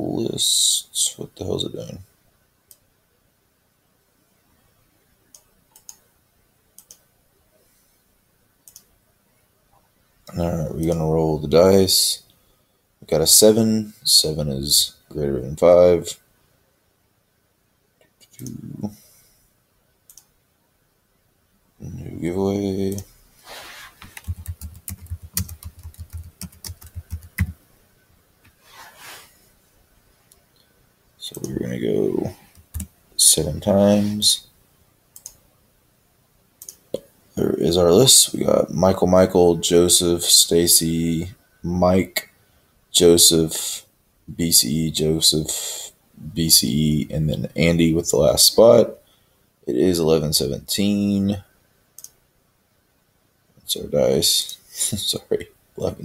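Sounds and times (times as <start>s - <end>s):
computer mouse clicking: 5.3s - 6.0s, 6.8s - 7.0s, 8.6s - 8.9s, 20.1s - 20.3s, 24.0s - 27.5s, 32.5s - 32.9s, 35.2s - 35.4s, 36.6s - 36.8s, 52.0s - 52.2s.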